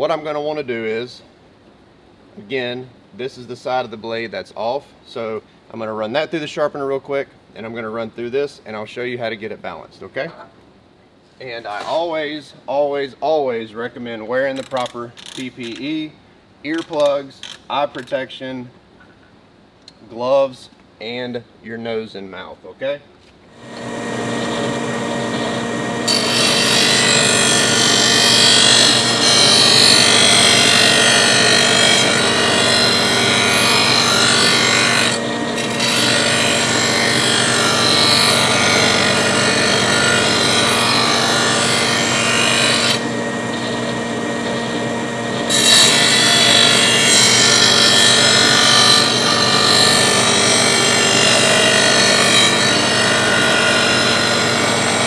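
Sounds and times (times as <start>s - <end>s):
grinding wheel grinding steel blade: 23.6s - 55.0s
motor humming: 23.6s - 55.0s.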